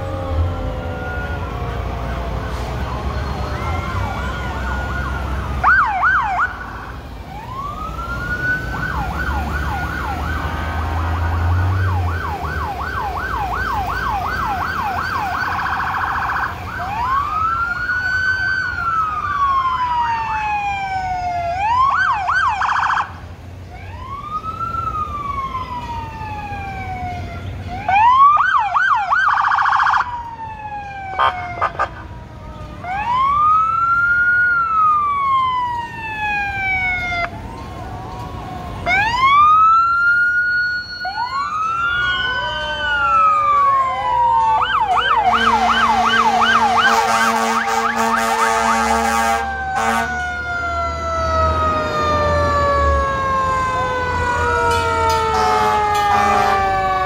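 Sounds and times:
emergency vehicle sirens: 0:00.0 - 0:57.0.

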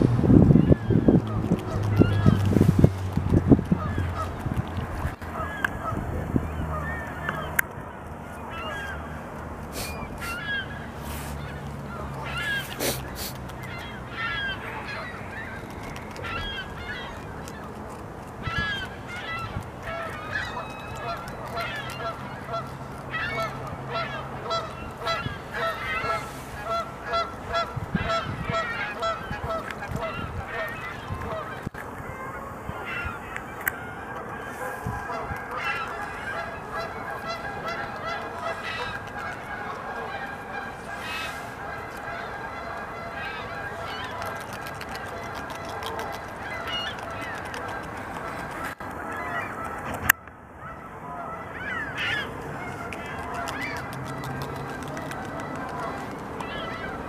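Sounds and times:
beavers gnawing wood: 0:01.1 - 0:05.8, 0:11.0 - 0:27.7, 0:33.3 - 0:50.1, 0:52.2 - 0:57.0
geese honking: 0:03.7 - 0:04.4, 0:08.4 - 0:17.8, 0:18.4 - 0:57.0.

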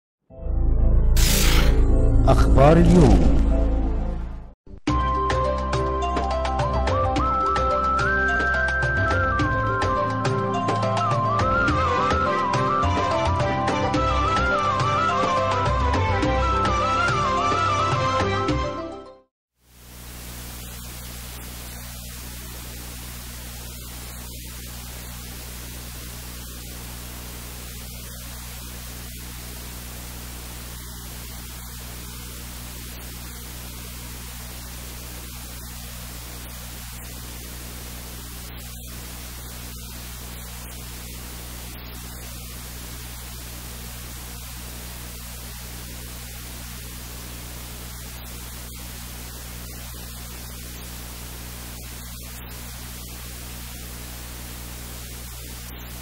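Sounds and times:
static hiss: 0:01.2 - 0:01.8, 0:19.6 - 0:56.0
low electrical hum: 0:19.7 - 0:56.0.

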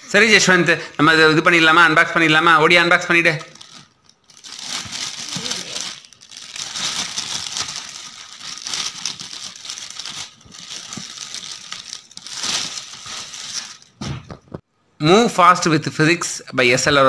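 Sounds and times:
plastic shrink-wrap crinkling: 0:03.4 - 0:14.0.

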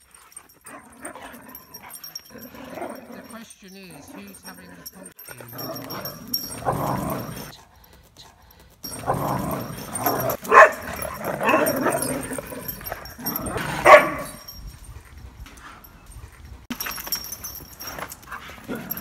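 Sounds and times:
dogs barking while play-fighting: 0:00.0 - 0:03.3, 0:04.1 - 0:07.6, 0:08.8 - 0:14.6, 0:17.8 - 0:19.0.

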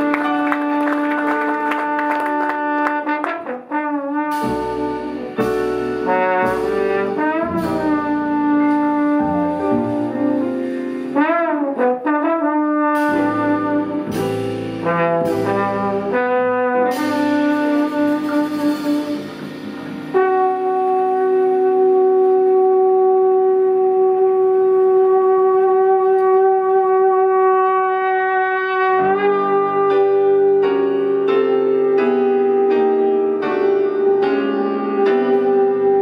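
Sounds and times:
jazz band crashing hits: 0:00.0 - 0:21.9
trombone playing jazz: 0:00.0 - 0:36.0.

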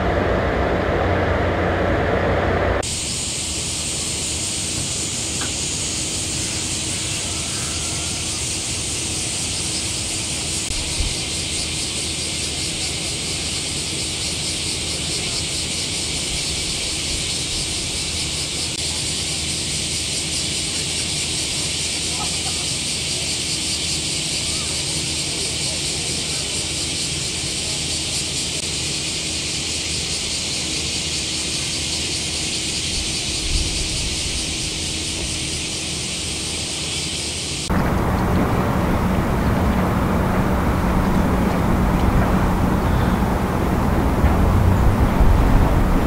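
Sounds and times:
high-pitched hiss: 0:02.8 - 0:46.0
faint steady hum: 0:32.1 - 0:46.0
low rumble: 0:37.7 - 0:46.0.

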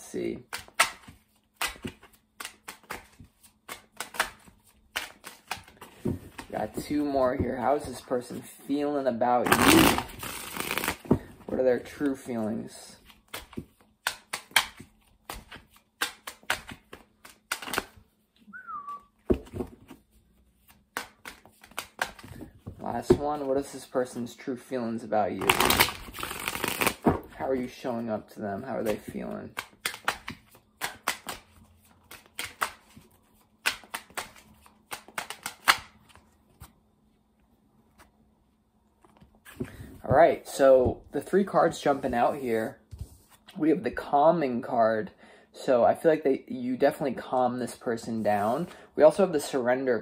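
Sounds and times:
cards being shuffled: 0:00.5 - 0:08.5, 0:09.4 - 0:18.1, 0:19.3 - 0:24.3, 0:25.3 - 0:27.8, 0:28.8 - 0:36.8
falling whistle-like tone: 0:18.5 - 0:19.1.

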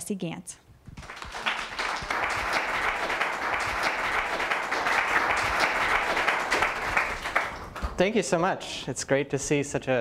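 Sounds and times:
audience applauding: 0:01.0 - 0:08.1.

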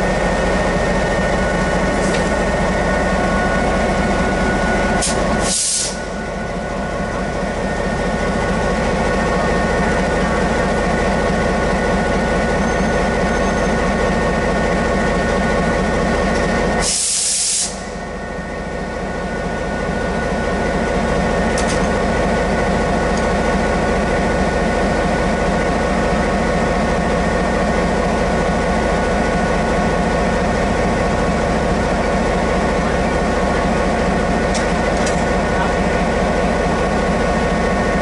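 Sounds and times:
diesel locomotive idling: 0:00.0 - 0:38.0
air hiss: 0:05.0 - 0:06.0, 0:16.8 - 0:17.8.

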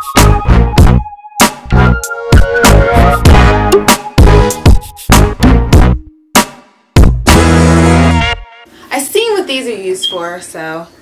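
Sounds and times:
music with steady beat: 0:00.0 - 0:08.7.

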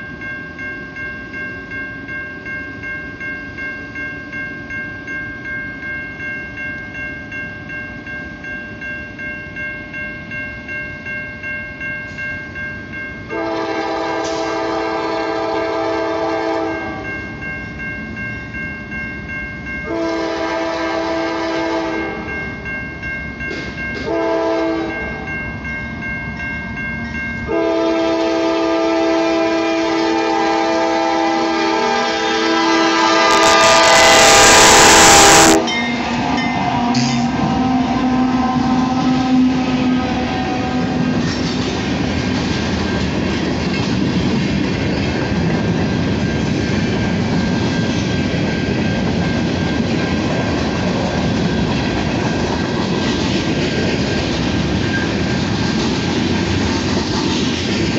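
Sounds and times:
crossing bell ringing: 0:00.0 - 0:56.6
train rushing past: 0:12.9 - 0:17.9, 0:19.8 - 0:57.9
train horn blasts: 0:13.3 - 0:17.1, 0:19.9 - 0:22.3, 0:24.0 - 0:25.3, 0:27.5 - 0:41.3.

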